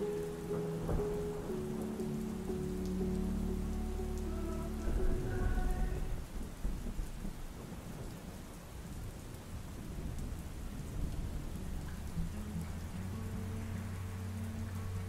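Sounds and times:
song: 0:00.0 - 0:06.2
heavy rain: 0:00.0 - 0:15.0
low rumble of thunder: 0:00.0 - 0:15.0.

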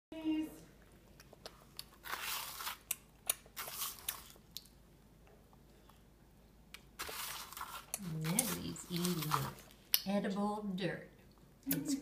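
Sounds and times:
child chewing crunchy food: 0:00.8 - 0:10.0.

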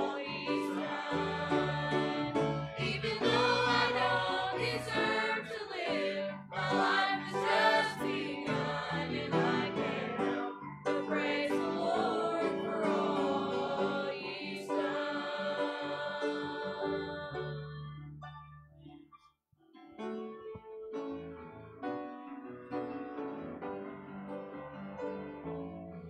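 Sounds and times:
choir singing a hymn: 0:00.0 - 0:17.9.

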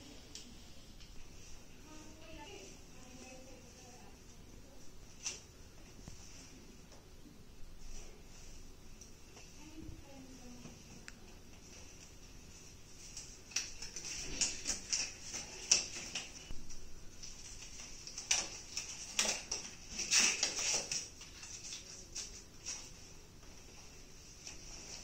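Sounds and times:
gloves rustling: 0:07.7 - 0:25.0.

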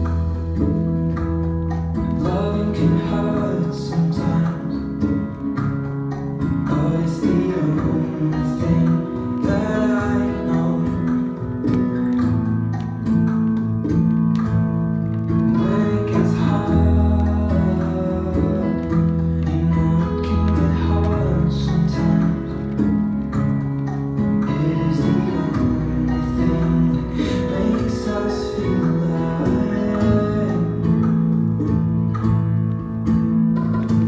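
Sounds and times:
plucked guitar: 0:00.0 - 0:34.0
steady percussion beat: 0:00.0 - 0:34.0
person singing: 0:02.2 - 0:05.5, 0:06.4 - 0:11.9, 0:15.5 - 0:23.5, 0:24.2 - 0:31.9.

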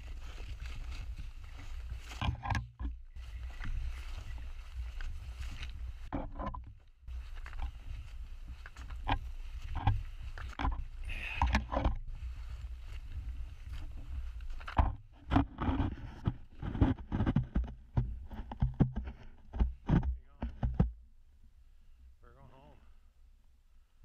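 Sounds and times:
footsteps crunching through snow: 0:00.0 - 0:06.2, 0:07.1 - 0:17.5.

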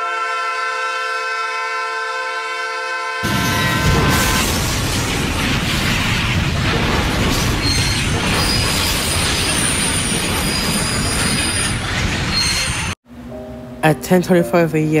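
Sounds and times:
train wheels rumbling on rail: 0:03.2 - 0:13.0
high-pitched wheel squeals: 0:09.5 - 0:13.0.

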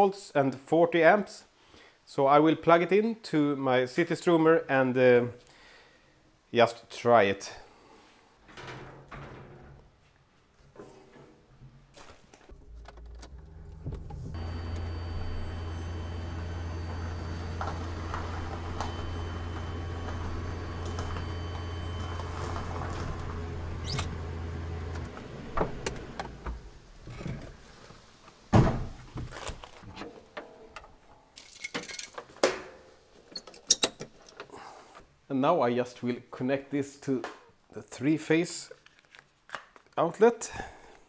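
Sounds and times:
electric car drive humming: 0:12.6 - 0:26.7.

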